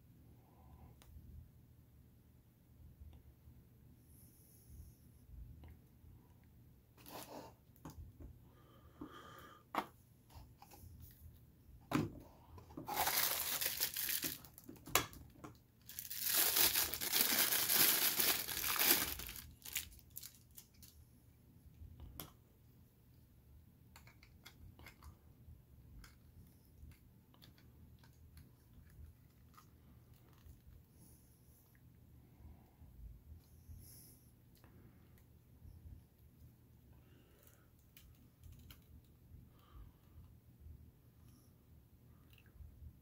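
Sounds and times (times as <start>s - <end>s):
plastic wrap crinkling and tearing: 12.8s - 15.2s, 15.8s - 21.0s.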